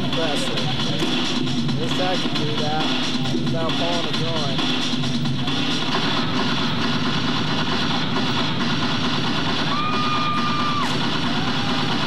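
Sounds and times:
crowd noise: 0:00.0 - 0:12.0
high held shout or whistle: 0:09.7 - 0:11.0.

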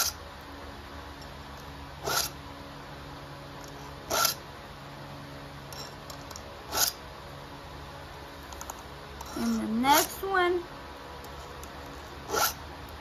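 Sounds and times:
file rasping on saw chain: 0:02.0 - 0:02.4, 0:04.0 - 0:04.4, 0:06.7 - 0:07.0, 0:09.2 - 0:10.1, 0:12.3 - 0:12.6.

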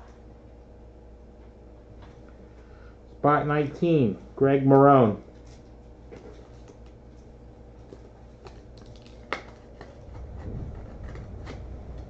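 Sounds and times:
low rumble of movement: 0:05.6 - 0:12.0.

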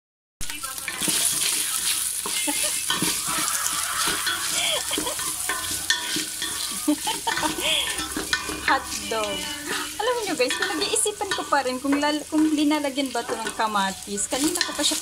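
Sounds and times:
meat sizzling in hot oil: 0:00.4 - 0:15.0
wooden spoon scraping pot: 0:00.8 - 0:15.0
spoon knocking against pot: 0:02.2 - 0:09.6, 0:10.2 - 0:12.6.

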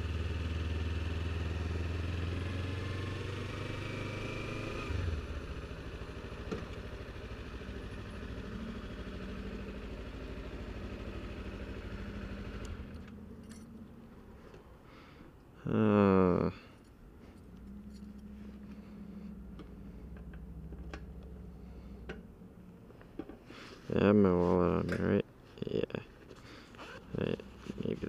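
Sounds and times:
motorcycle engine running: 0:00.0 - 0:14.2, 0:17.5 - 0:22.9.

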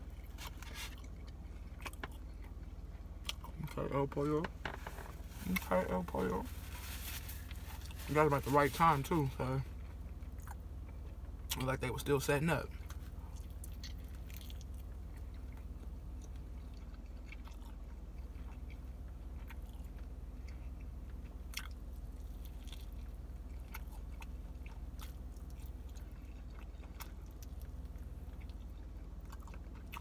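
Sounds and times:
person chewing food: 0:00.0 - 0:03.8, 0:09.7 - 0:11.6, 0:12.7 - 0:30.0
low hum: 0:00.0 - 0:30.0.

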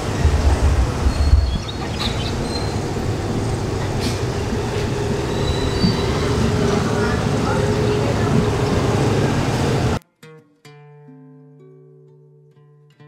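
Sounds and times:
heavy low rumble: 0:00.0 - 0:10.0
motor vehicle running: 0:00.0 - 0:10.0.

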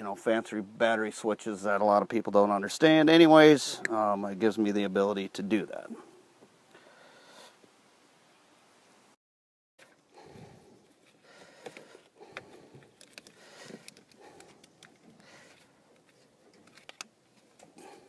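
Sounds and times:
rustling: 0:09.8 - 0:18.0.

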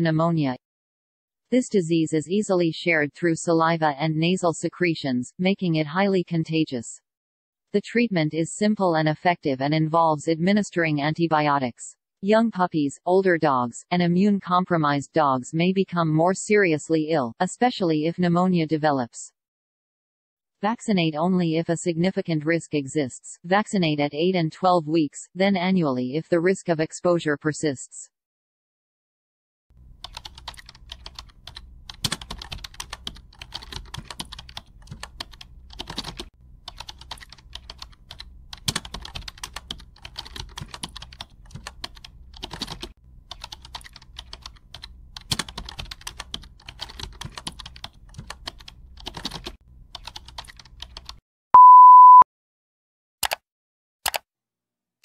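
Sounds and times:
keyboard typing clicks: 0:30.1 - 0:52.2, 0:53.2 - 0:53.4
loud steady beep: 0:51.6 - 0:52.2.

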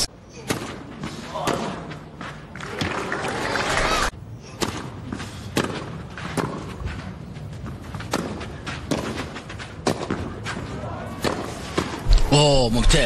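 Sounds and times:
tennis rackets hitting ball: 0:04.6 - 0:06.8, 0:07.6 - 0:12.0.

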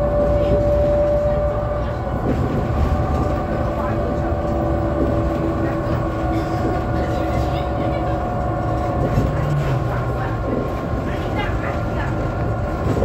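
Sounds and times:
bus engine drone: 0:00.0 - 0:13.0.

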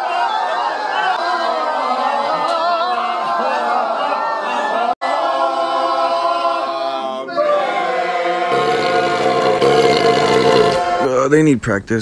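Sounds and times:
group singing amen: 0:05.0 - 0:11.0.

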